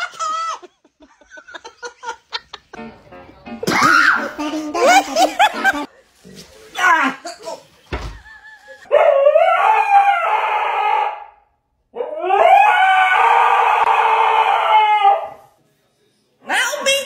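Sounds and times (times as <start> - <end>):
dog howling: 12.0 - 15.4.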